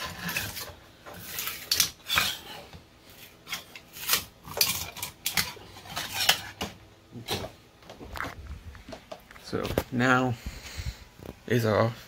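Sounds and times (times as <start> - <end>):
plastic scraping and clinking on metal: 0.0 - 2.7, 3.4 - 7.5.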